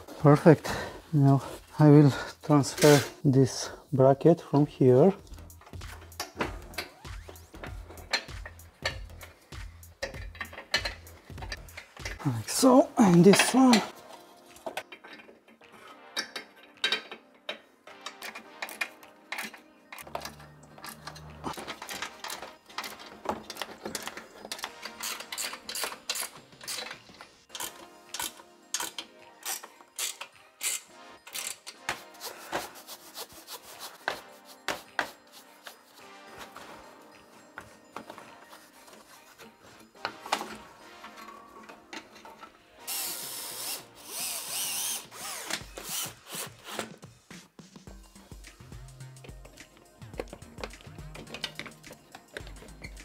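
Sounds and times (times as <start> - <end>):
ratchet wrench clicking: 27.5 - 31.8
cordless screwdriver motor whine: 42.9 - 46.2.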